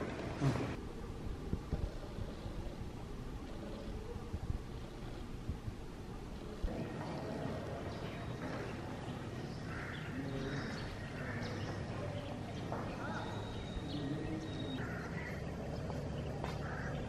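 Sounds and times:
faint distant voices: 0.0 - 17.0
bird calls: 7.1 - 17.0.

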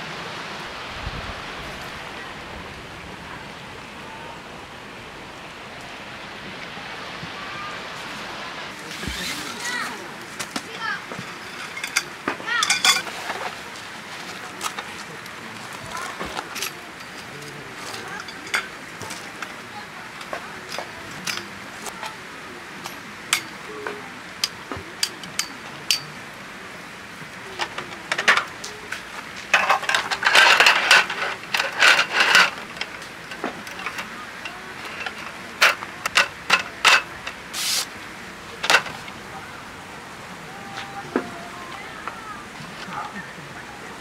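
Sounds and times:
slatted tabletop rattling: 11.1 - 13.6, 29.5 - 37.3
metal frame clicking and knocking: 29.5 - 37.4, 38.6 - 39.0.

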